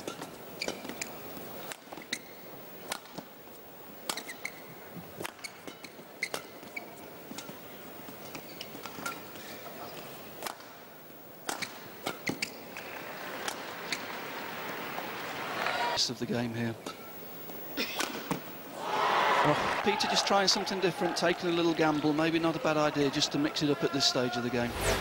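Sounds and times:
rackets hitting shuttlecock: 17.8s - 18.5s
crowd murmur: 22.2s - 25.0s.

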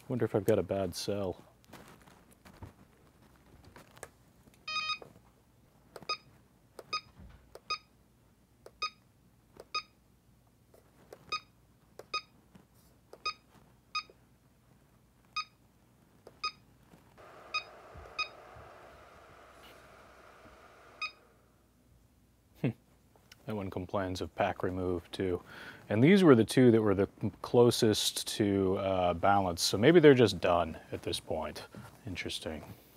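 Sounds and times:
faint steady hiss: 0.0s - 6.9s, 7.5s - 32.9s
short high beeps: 17.5s - 18.4s, 21.0s - 21.2s.

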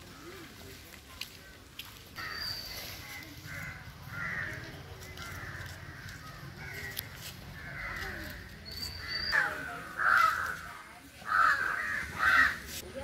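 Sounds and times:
harsh bird calls: 7.6s - 10.6s.

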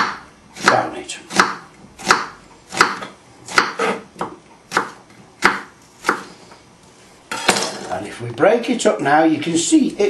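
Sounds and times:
knife chopping on wooden board: 0.0s - 6.3s.

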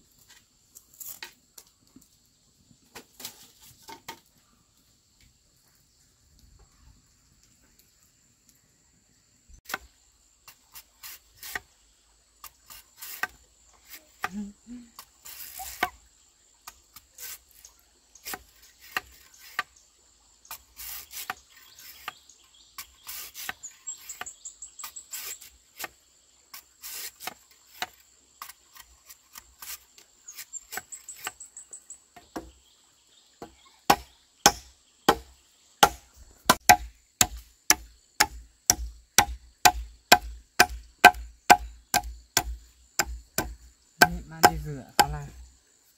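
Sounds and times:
insect trills: 0.0s - 45.9s
insects droning: 0.0s - 45.9s
machete chopping wood: 18.2s - 19.7s, 33.9s - 45.4s.

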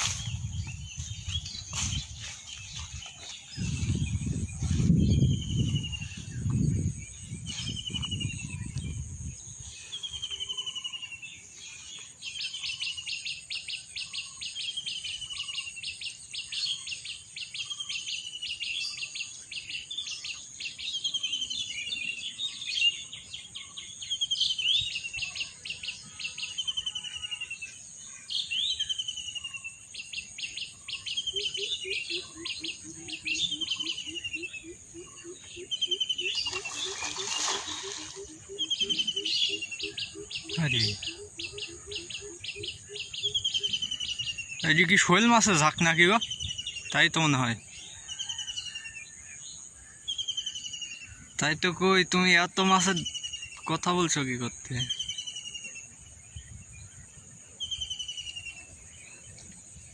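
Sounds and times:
birds chattering trills: 0.0s - 59.9s
low splashing: 36.3s - 38.5s.

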